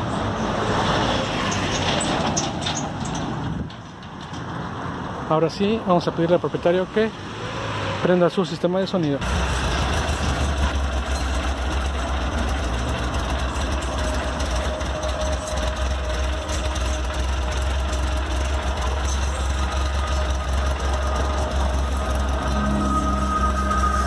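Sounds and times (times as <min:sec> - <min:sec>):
car engine idling: 0:09.2 - 0:24.0.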